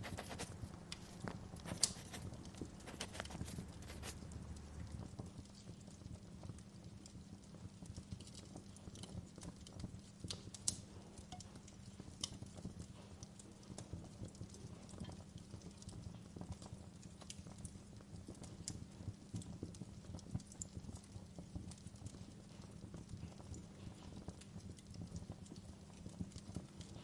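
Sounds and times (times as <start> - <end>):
log fire crackling: 0.0 - 5.2
low fire rumble: 0.0 - 27.0.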